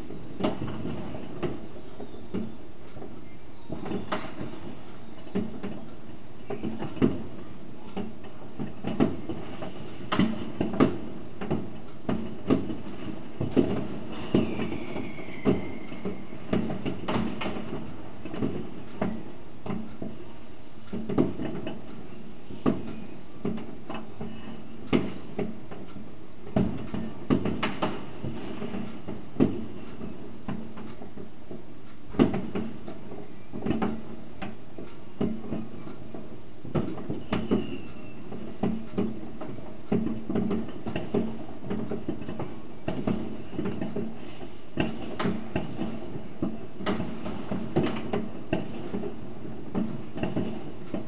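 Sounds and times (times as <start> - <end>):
distant fireworks crackling: 0.0 - 51.0
firework whistle: 14.0 - 17.6, 37.1 - 38.5.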